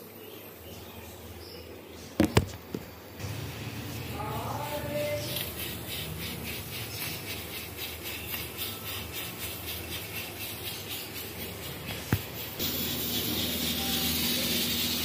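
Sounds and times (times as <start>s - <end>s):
pressure cooker hissing: 10.8s - 15.0s.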